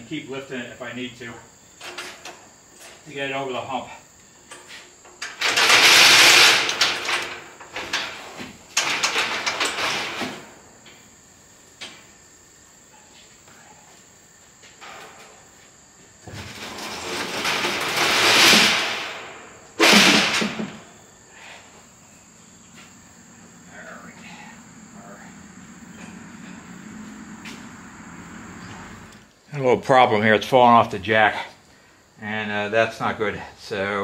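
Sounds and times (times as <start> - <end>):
dollies grinding across metal deck: 1.7 - 3.0, 5.0 - 10.9, 16.2 - 21.0
dolly wheels clunk: 1.8 - 3.0, 4.5 - 11.0, 14.8 - 15.5, 16.2 - 20.9.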